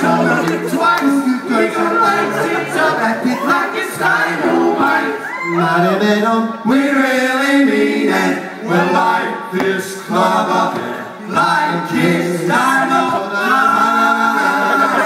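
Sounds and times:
men singing a cappella: 0:00.0 - 0:15.0.

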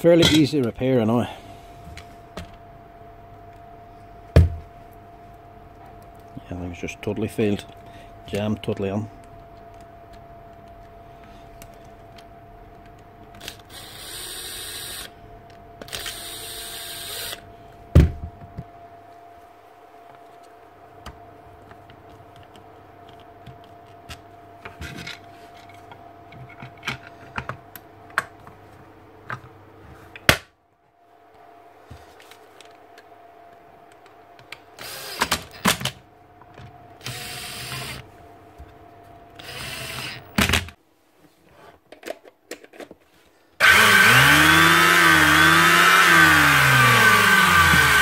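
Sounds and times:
drill-driver whirring: 0:13.4 - 0:15.1, 0:15.8 - 0:17.4, 0:34.8 - 0:35.3, 0:37.0 - 0:38.0, 0:39.4 - 0:40.4, 0:43.6 - 0:48.0
planer motor running: 0:43.6 - 0:48.0.

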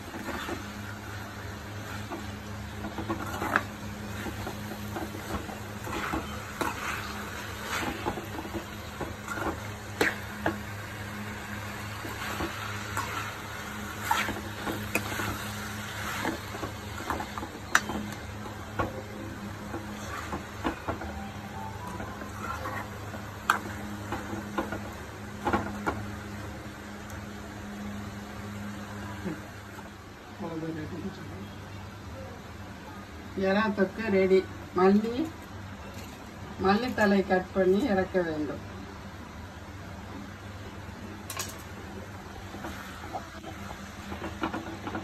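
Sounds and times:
food sizzling: 0:00.0 - 0:29.9.

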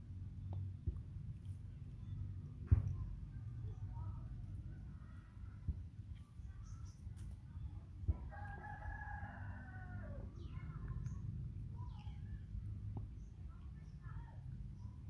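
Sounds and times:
steady low rumble: 0:00.0 - 0:15.0
rooster crowing: 0:08.3 - 0:10.2.

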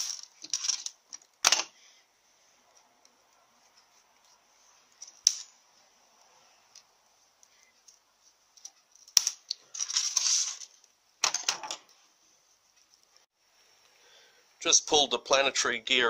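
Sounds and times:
metal parts clattering: 0:00.0 - 0:01.7, 0:08.9 - 0:11.8
metal parts clicking: 0:00.0 - 0:01.7.

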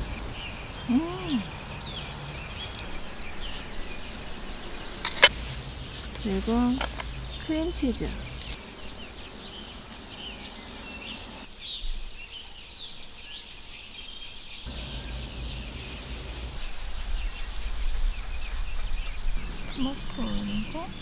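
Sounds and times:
small birds chirping: 0:00.0 - 0:21.0
high insect drone: 0:12.8 - 0:21.0
low rumble: 0:14.7 - 0:17.8.

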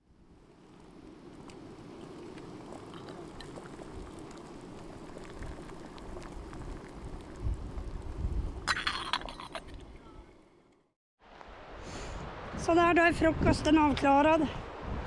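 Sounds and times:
water boiling in a pot: 0:00.0 - 0:10.1.

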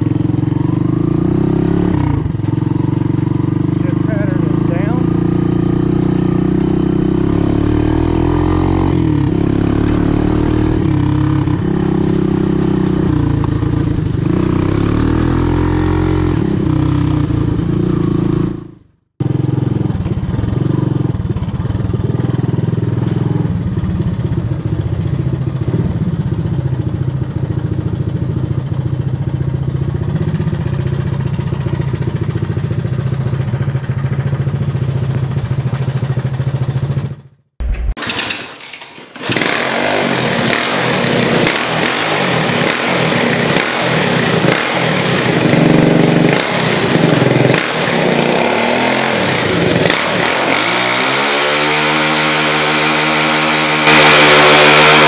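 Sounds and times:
engine revving: 0:00.0 - 0:24.4, 0:39.2 - 0:55.0.

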